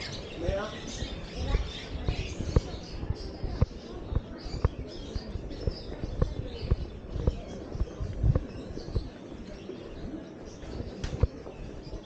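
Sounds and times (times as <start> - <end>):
faint street noise: 0.0 - 12.0
footsteps on stone paving: 3.5 - 9.2.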